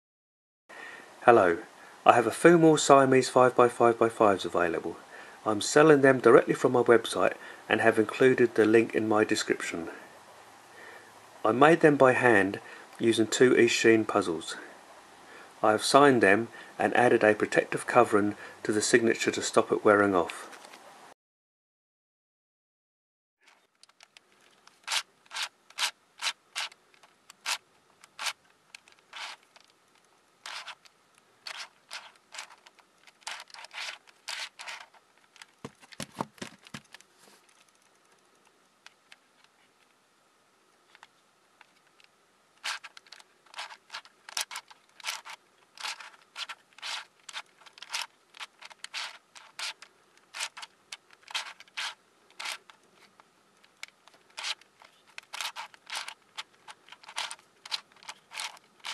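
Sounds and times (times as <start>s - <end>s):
twisty puzzle clicking turns: 23.4s - 39.6s, 40.9s - 58.9s.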